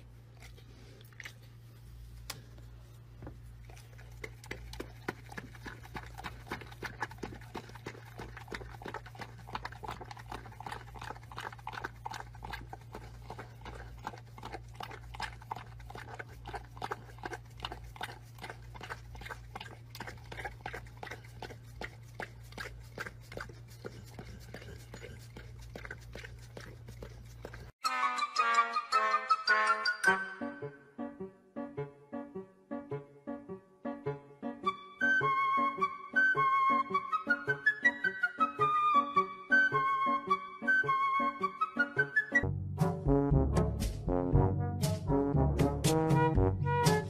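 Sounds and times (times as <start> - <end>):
dog licking and lapping: 0.0 - 2.6, 3.3 - 27.8.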